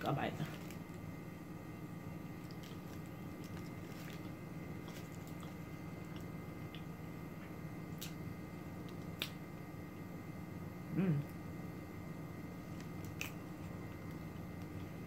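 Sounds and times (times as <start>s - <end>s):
steady low hum: 0.0s - 15.0s
person chewing sandwich: 0.5s - 9.4s, 12.3s - 15.0s.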